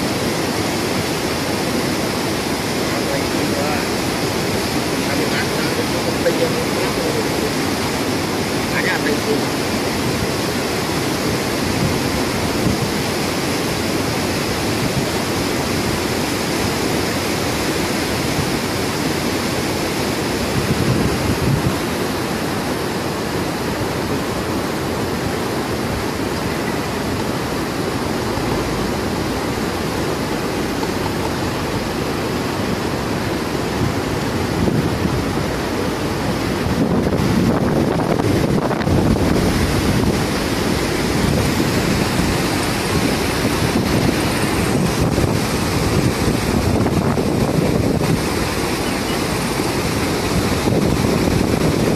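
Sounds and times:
river water rushing: 0:00.0 - 0:51.9
wind on microphone: 0:00.0 - 0:51.9.

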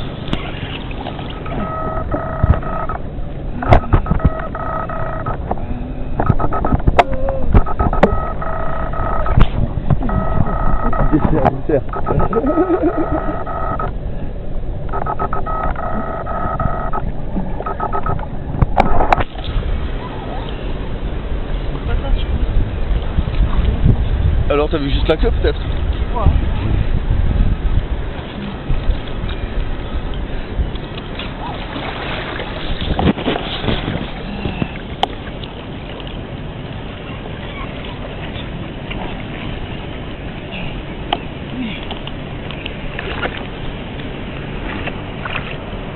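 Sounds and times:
water around a boat: 0:00.0 - 0:45.9
wind: 0:00.0 - 0:45.9
wind on microphone: 0:00.0 - 0:45.9
sharp clicks: 0:06.2 - 0:13.9, 0:14.9 - 0:17.0, 0:17.6 - 0:19.3.

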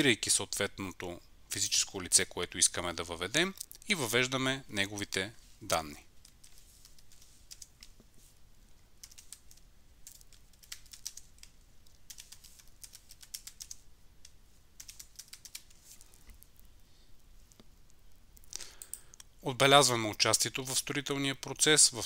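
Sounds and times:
faint keyboard typing: 0:05.7 - 0:16.8, 0:17.4 - 0:19.4.

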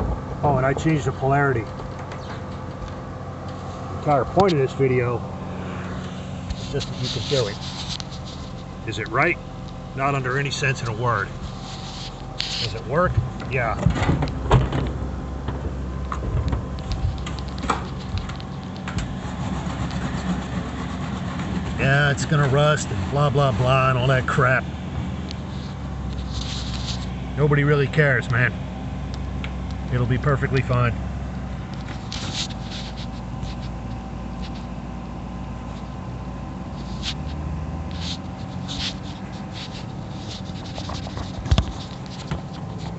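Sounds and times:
low machine hum: 0:00.0 - 0:42.9
scratchy rustles: 0:06.0 - 0:09.1, 0:10.2 - 0:13.8, 0:16.8 - 0:24.2, 0:25.4 - 0:27.2, 0:31.7 - 0:34.8, 0:36.7 - 0:42.9.

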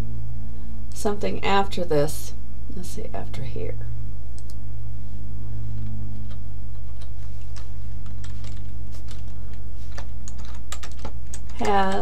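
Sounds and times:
low electrical hum: 0:00.0 - 0:12.0
computer keyboard clicks: 0:06.3 - 0:12.0.

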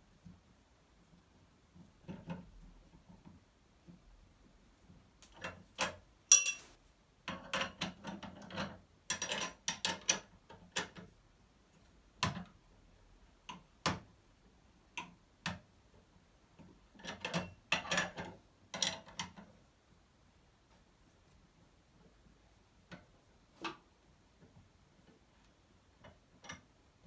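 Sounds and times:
metal hand tools clicking: 0:06.3 - 0:06.7.

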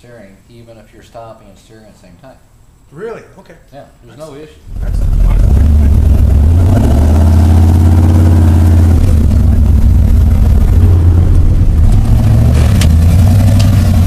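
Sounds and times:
pickup engine deep rumble: 0:04.6 - 0:14.0.

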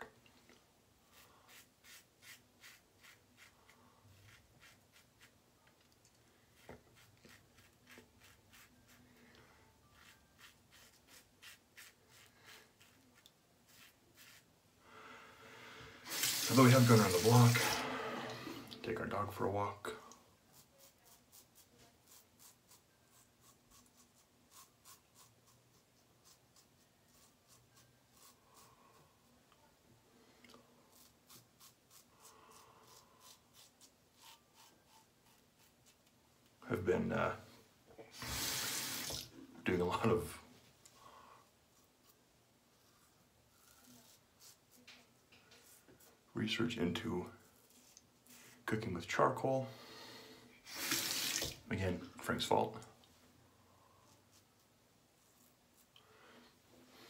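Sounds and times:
razor scraping stubble: 0:01.1 - 0:05.4, 0:06.5 - 0:09.3, 0:09.9 - 0:14.5, 0:20.5 - 0:28.7, 0:30.9 - 0:36.1.

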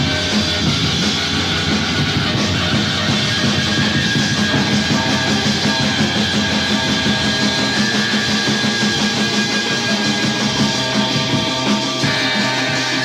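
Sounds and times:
electric guitar: 0:00.0 - 0:13.0
rock band playing: 0:00.0 - 0:13.0.

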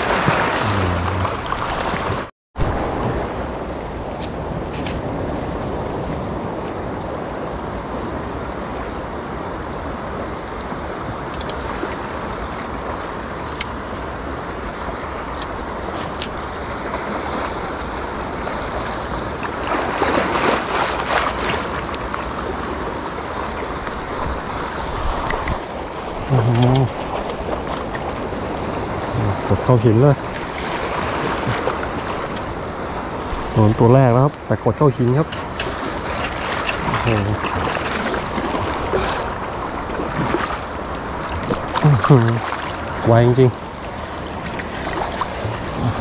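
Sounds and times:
small waves breaking on rocks: 0:00.0 - 0:03.4, 0:11.6 - 0:29.1, 0:29.8 - 0:46.0
wind on microphone: 0:00.0 - 0:09.2, 0:44.3 - 0:46.0
brief voice: 0:00.6 - 0:01.4.

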